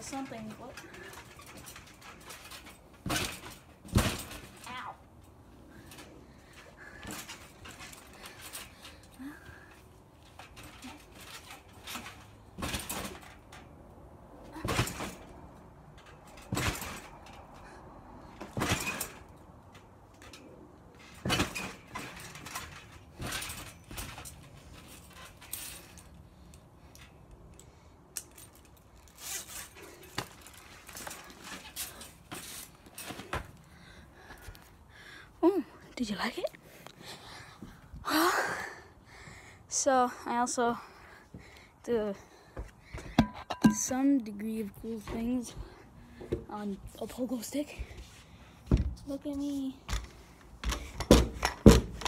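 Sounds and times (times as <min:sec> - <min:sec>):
trampoline landing thuds: 0:00.0 - 0:05.0, 0:05.8 - 0:08.9, 0:10.3 - 0:13.7, 0:14.4 - 0:17.6, 0:18.2 - 0:19.4, 0:20.9 - 0:26.0, 0:49.9 - 0:52.0.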